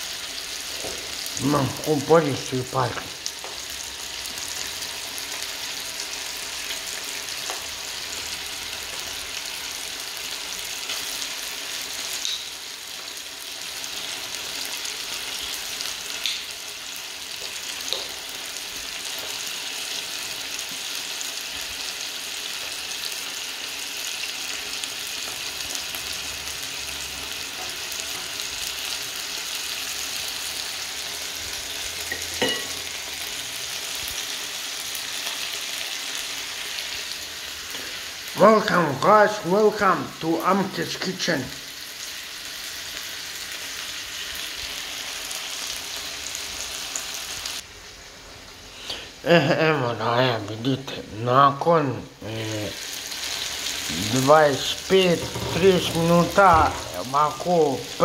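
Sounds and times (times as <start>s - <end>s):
chicken sizzling in hot oil: 0.0s - 51.2s, 52.2s - 58.0s
tongs clicking against pan: 12.2s - 12.5s.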